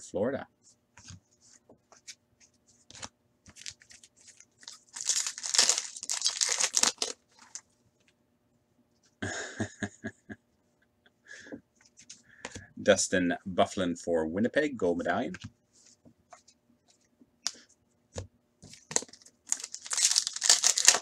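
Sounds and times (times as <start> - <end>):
crinkling of cards and wrapper: 2.9 - 7.7, 18.7 - 21.0
foil wrapper tearing: 4.6 - 7.6, 19.0 - 21.0.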